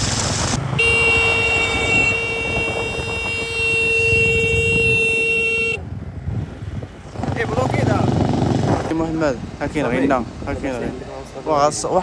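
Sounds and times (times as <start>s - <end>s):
steady horn-like tone: 0.8s - 5.8s.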